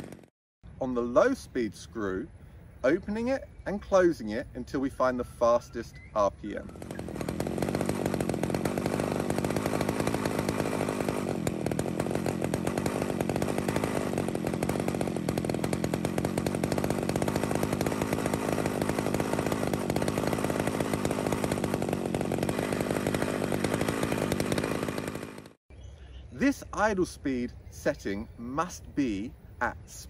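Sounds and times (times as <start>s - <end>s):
chainsaw engine fast idle: 0.0s - 0.3s, 6.5s - 25.6s.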